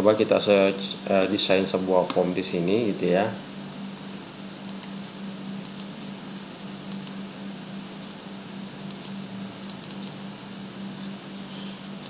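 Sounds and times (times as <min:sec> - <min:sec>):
low hum and hiss: 0:00.0 - 0:12.0
computer mouse clicking: 0:04.7 - 0:05.0, 0:05.6 - 0:05.9, 0:06.9 - 0:07.2, 0:08.9 - 0:10.2.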